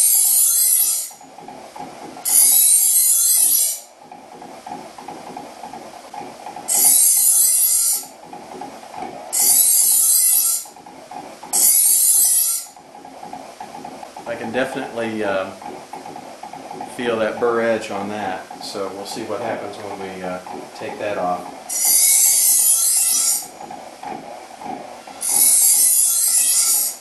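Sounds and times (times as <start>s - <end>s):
bench grinder humming: 25.1s - 27.0s.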